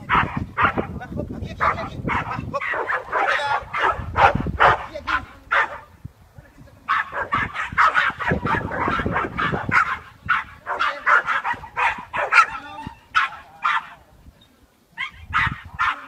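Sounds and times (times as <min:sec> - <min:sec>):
dog barking in sharp yaps: 0:01.6 - 0:05.8, 0:06.9 - 0:14.0, 0:15.0 - 0:16.0.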